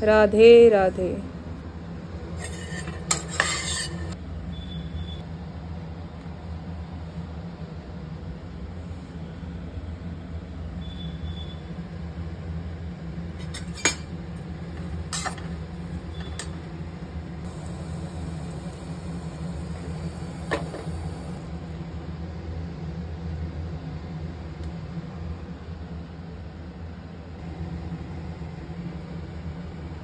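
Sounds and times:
steady low hum: 14.2 - 30.0.

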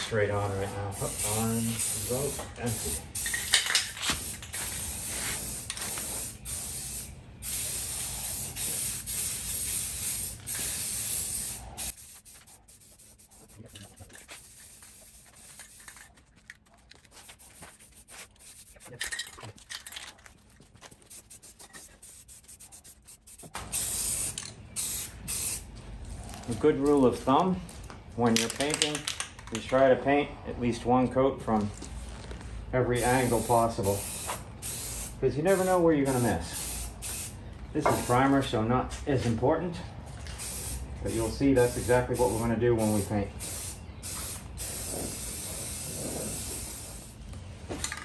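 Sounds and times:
aerosol spray hissing: 0.6 - 3.5, 4.2 - 16.0, 17.2 - 18.9, 21.0 - 25.6, 33.0 - 38.2, 40.4 - 47.2.

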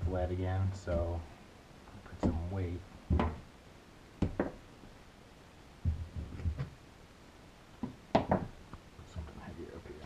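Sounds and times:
weights knocking on wood: 3.1 - 3.4, 4.2 - 4.6, 5.8 - 6.8, 7.8 - 8.6.

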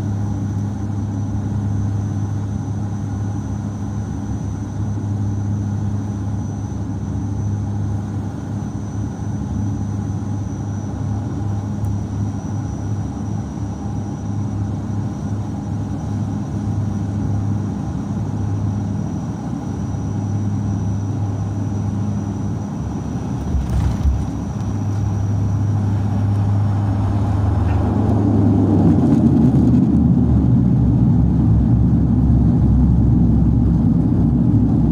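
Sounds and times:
airliner engines humming: 0.0 - 34.9
high engine whine: 0.0 - 34.9
reverse thrust roar: 22.9 - 34.9.

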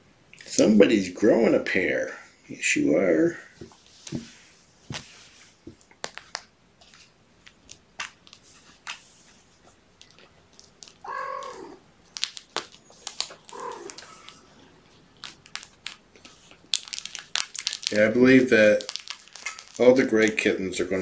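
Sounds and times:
rustles: 3.5 - 20.5
kitten meowing: 11.0 - 11.8, 13.4 - 14.4.

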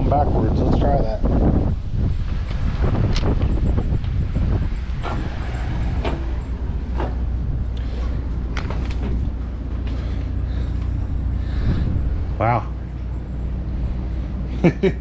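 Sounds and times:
wind rumble on microphone: 0.0 - 15.0
footsteps on steel stairs: 5.0 - 11.2.

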